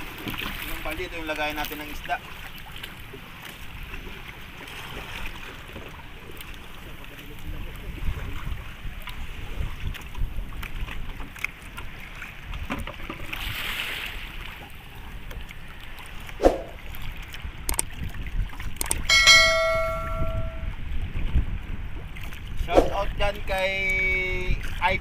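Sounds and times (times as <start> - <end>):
wind rumble on microphone: 3.0 - 25.0
water sloshing: 9.0 - 20.7
metal object ringing: 19.1 - 20.7.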